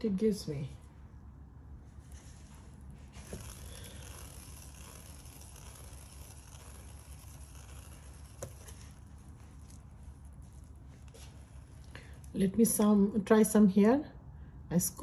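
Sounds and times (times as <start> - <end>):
steady low hum: 0.0 - 14.9
canvas rustling and handling: 1.8 - 12.3.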